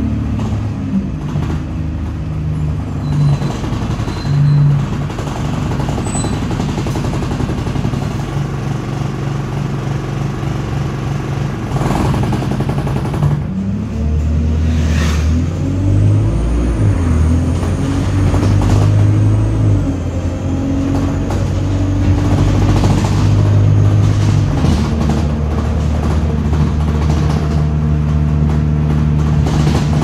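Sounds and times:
bus engine running: 0.0s - 30.0s.

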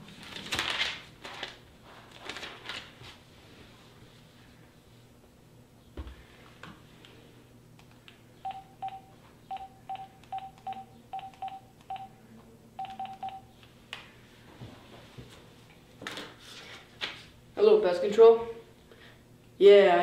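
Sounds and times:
phone keypad beeps: 8.4s - 12.1s, 12.8s - 13.5s.

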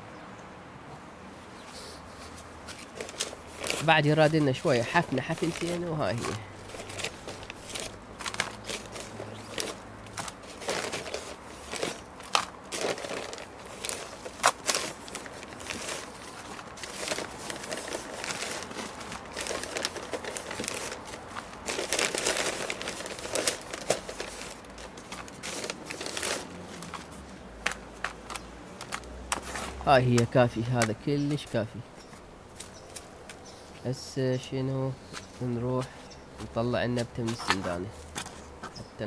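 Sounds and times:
plastic bags crinkling: 2.7s - 31.6s.

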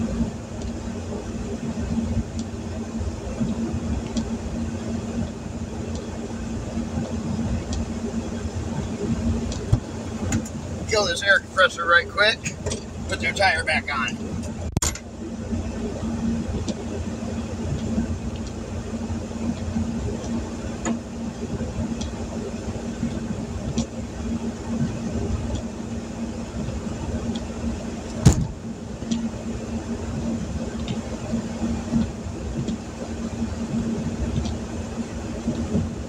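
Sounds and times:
low mechanical hum: 0.0s - 36.0s
rain tapping on windshield: 3.3s - 4.4s, 5.2s - 6.1s, 6.8s - 14.5s, 16.5s - 18.7s, 19.4s - 22.4s, 26.3s - 36.0s.

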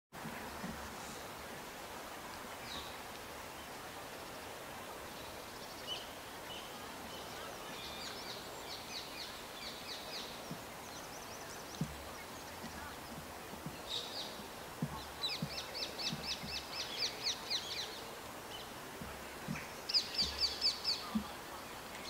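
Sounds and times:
background hiss: 0.2s - 22.0s
small birds chirping: 0.2s - 22.0s
soft low thump: 11.7s - 13.9s, 14.8s - 16.7s, 19.0s - 21.4s.

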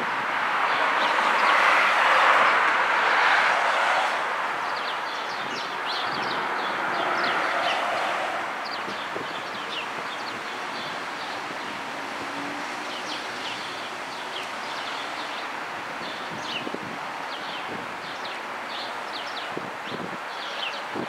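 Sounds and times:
small birds chirping: 4.6s - 7.4s, 8.6s - 11.8s.

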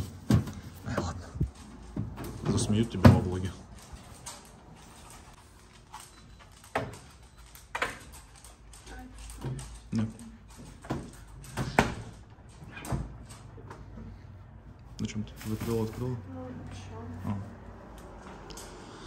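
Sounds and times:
refrigerator door and drawers clunking: 1.8s - 3.6s.

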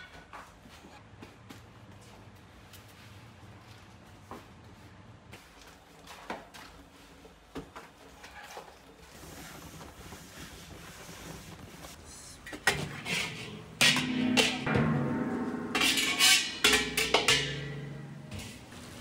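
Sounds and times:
metal bowl clanking and ringing: 13.8s - 18.7s.

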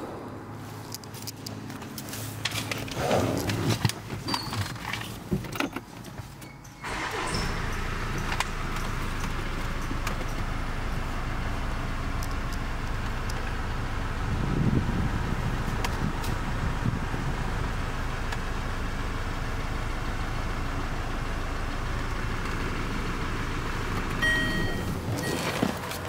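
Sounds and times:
car engine starting and humming: 0.0s - 26.0s
clicks and rustles of handling: 0.8s - 6.5s, 25.1s - 26.0s.

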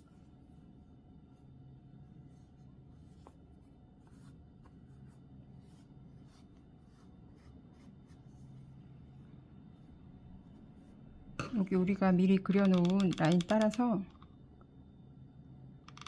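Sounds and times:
low steady hum: 0.0s - 16.0s
fingers rustling yarn: 2.2s - 8.8s.

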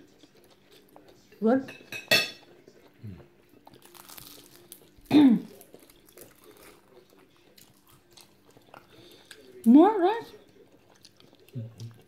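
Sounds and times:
crunching of crispy food: 3.5s - 9.7s.

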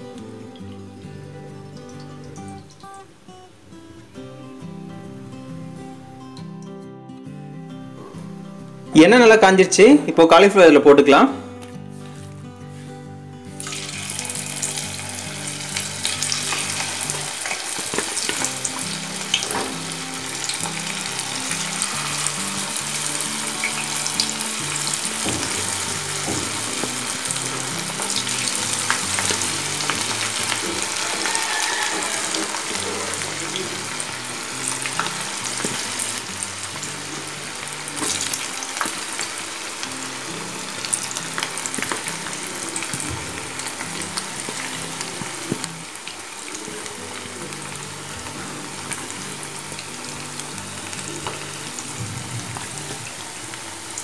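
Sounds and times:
batter deep-frying in hot oil: 13.6s - 54.0s.

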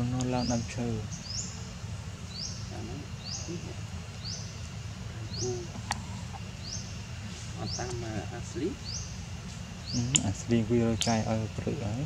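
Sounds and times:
low background rumble: 0.0s - 12.0s
sharp click: 10.1s - 10.3s.

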